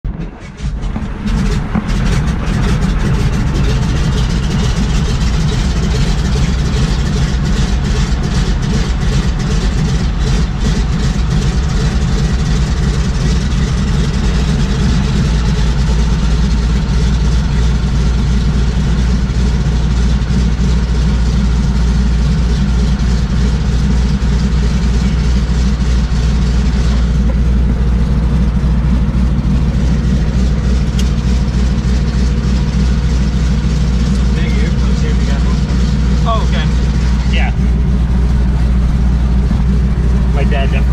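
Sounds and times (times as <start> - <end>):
propeller plane engine droning: 0.0 - 40.9.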